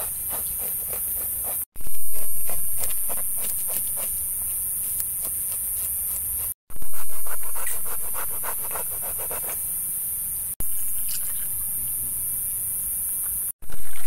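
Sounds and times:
knife scraping fish scales: 0:00.0 - 0:09.6.

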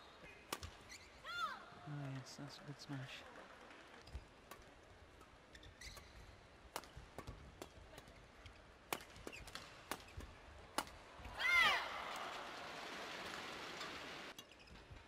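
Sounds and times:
rackets hitting shuttlecock: 0:00.2 - 0:01.1, 0:03.7 - 0:15.0
crowd applause: 0:11.6 - 0:14.3.

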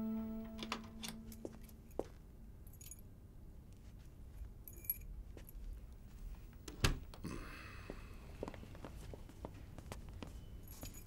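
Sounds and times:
faint metallic jingling: 0:04.4 - 0:05.7, 0:10.4 - 0:11.0.

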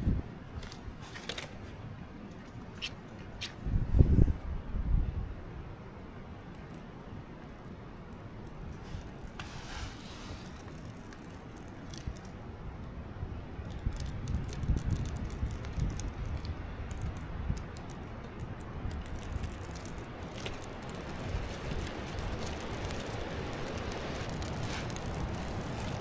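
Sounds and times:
wind buffeting microphone: 0:03.6 - 0:05.4, 0:12.0 - 0:26.0
bark burning with crackling hiss: 0:06.3 - 0:26.0
twigs crackling and rustling: 0:08.4 - 0:12.5, 0:13.6 - 0:26.0.

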